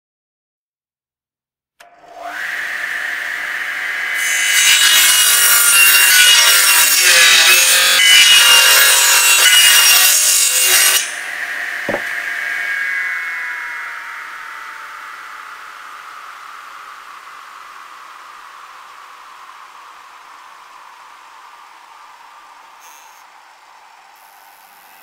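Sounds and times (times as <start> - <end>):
saw cutting wooden board: 1.8 - 17.5
table saw whine: 1.8 - 25.0
knock: 11.9 - 12.2.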